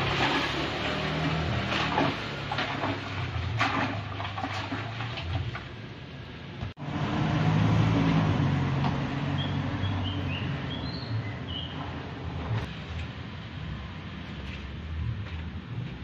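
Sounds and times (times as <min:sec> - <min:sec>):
vehicle engine hum: 0:00.0 - 0:16.0
high bird chirps: 0:09.3 - 0:11.8.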